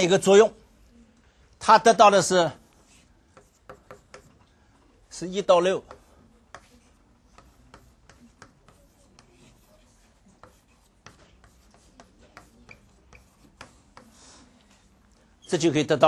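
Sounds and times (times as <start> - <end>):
chalk tapping and scraping on blackboard: 2.6 - 4.6, 5.4 - 15.0.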